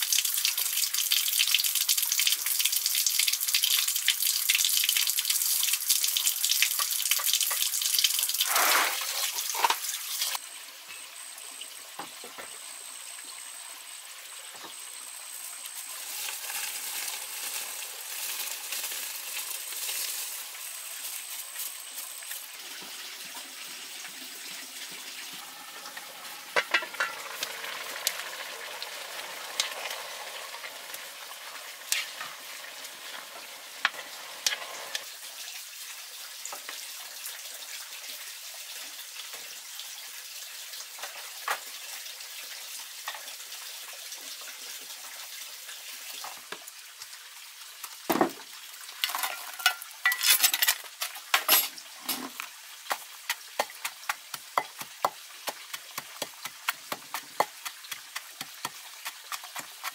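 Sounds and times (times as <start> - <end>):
wood fire crackling: 15.8 - 22.5
chopsticks scraping metal pot: 31.9 - 32.2.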